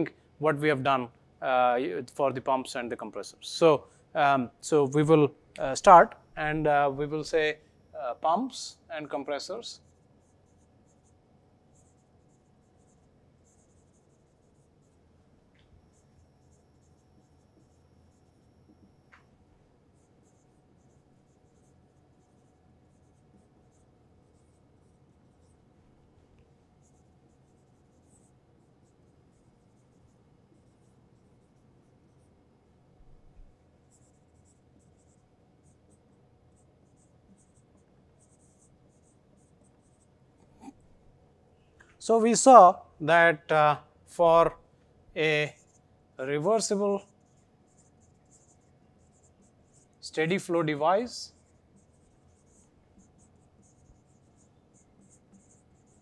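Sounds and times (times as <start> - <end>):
marker squeaking on whiteboard: 15.6 - 25.6, 33.0 - 40.9, 46.4 - 50.7, 51.3 - 56.0.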